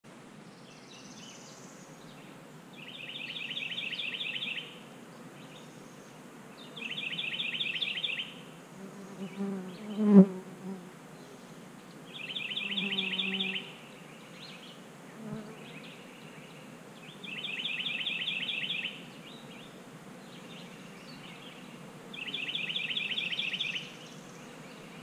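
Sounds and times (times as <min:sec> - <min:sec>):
honeybees buzzing: 0:08.4 - 0:11.1, 0:12.6 - 0:13.8.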